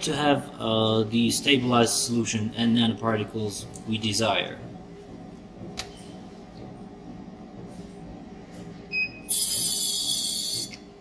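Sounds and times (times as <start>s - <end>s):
low steady machine hum: 0.0s - 11.0s
high-pitched screeching hiss: 9.3s - 10.7s.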